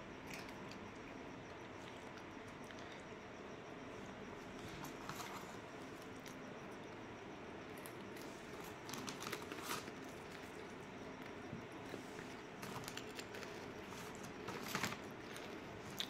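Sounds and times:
cats crunching food: 0:00.2 - 0:03.1, 0:07.7 - 0:16.0.

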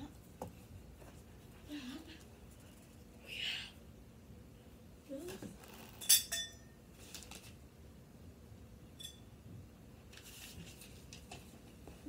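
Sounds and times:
rustling: 0:10.1 - 0:12.0.

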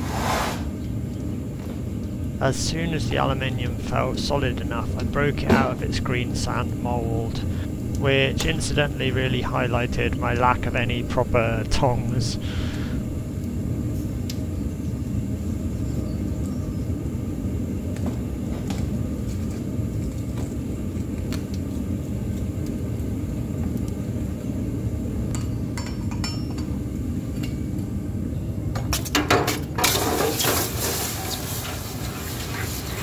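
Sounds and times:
steady low rumble: 0:00.7 - 0:25.3
hot metal sizzling in water: 0:29.8 - 0:33.0.

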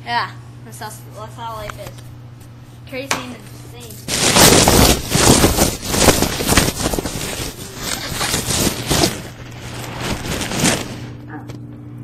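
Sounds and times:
packaging foam rustling and crackling: 0:03.9 - 0:11.2.

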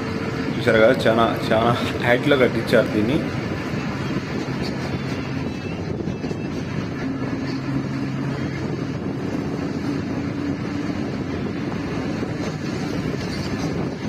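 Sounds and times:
road noise: 0:00.0 - 0:14.0
vehicle engine humming: 0:00.0 - 0:14.0
wind on microphone: 0:00.0 - 0:14.0.

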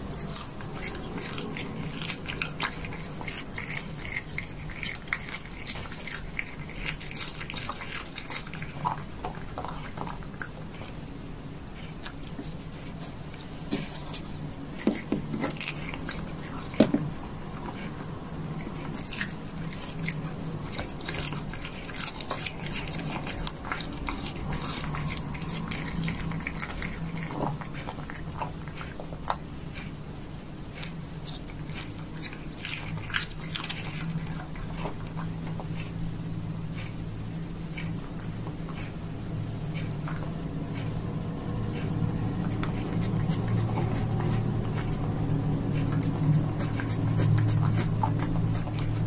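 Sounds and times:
cat chewing crunchy food: 0:00.0 - 0:49.0.

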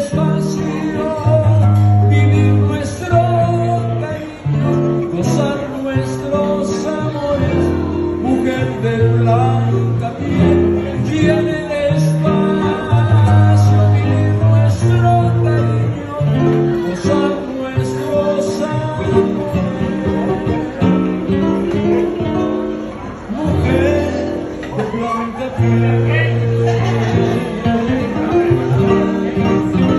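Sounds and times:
man singing a ballad: 0:00.0 - 0:22.1, 0:23.2 - 0:29.9
strummed acoustic guitar: 0:00.0 - 0:29.9.

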